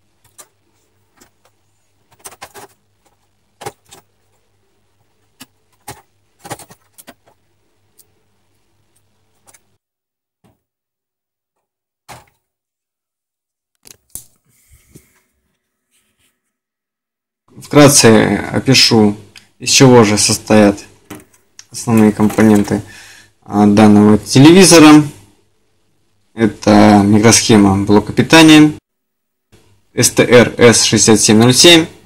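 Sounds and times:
plastic parts clicking and rattling: 0.2 - 8.2, 8.9 - 9.7, 21.1 - 22.9.

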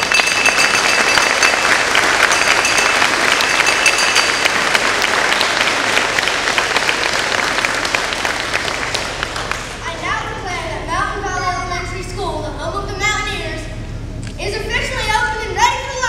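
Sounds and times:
bell ringing: 0.0 - 6.1
audience applauding: 0.0 - 10.0.

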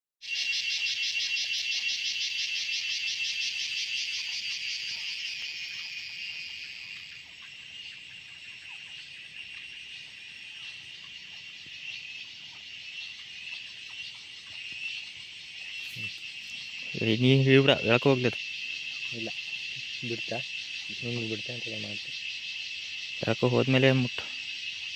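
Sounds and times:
insect chorus trilling: 0.2 - 24.9.

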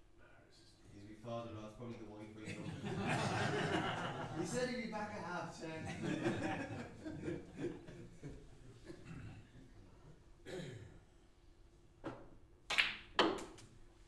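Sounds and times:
cue tip tapping cue ball: 12.0 - 13.6
snooker balls clacking: 12.0 - 13.6.

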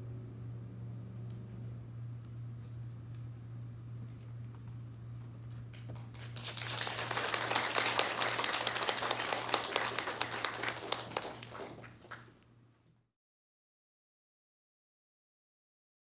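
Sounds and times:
steady low hum: 0.0 - 12.8
audience applauding: 5.9 - 12.3.

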